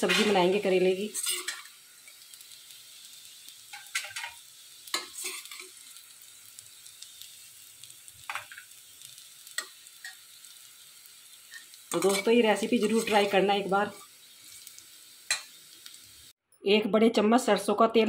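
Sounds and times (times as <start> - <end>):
metal spatula scraping a pan: 0.0 - 2.3, 3.7 - 5.8, 11.4 - 15.6
vegetable slices sizzling faintly: 0.0 - 16.3.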